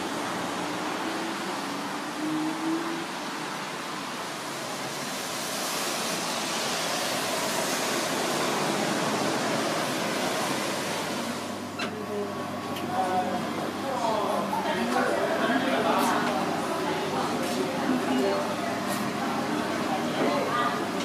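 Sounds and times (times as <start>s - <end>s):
rushing outdoor hiss: 0.0s - 11.6s.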